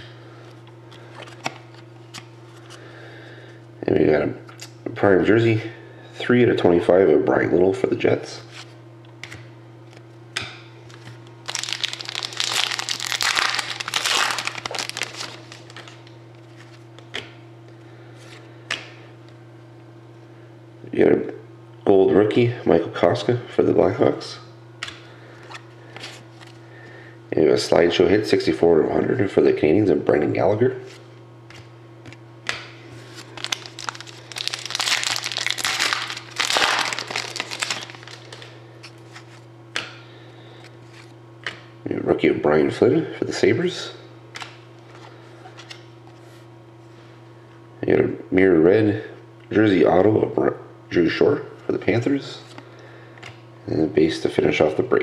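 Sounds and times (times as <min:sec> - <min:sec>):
trading cards rustling: 0:10.9 - 0:17.0, 0:33.0 - 0:39.5
thin plastic crinkling: 0:11.0 - 0:16.8, 0:33.0 - 0:39.4.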